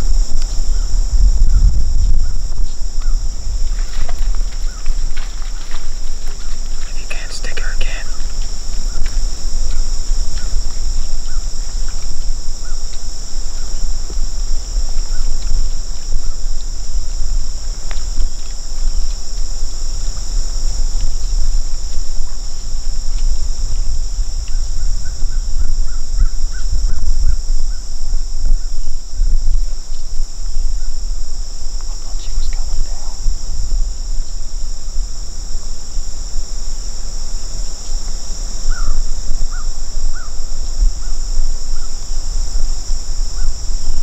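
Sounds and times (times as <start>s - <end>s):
high-pitched insect drone: 0.0s - 44.0s
wind rumble on microphone: 0.0s - 44.0s
short calls: 6.4s - 9.1s.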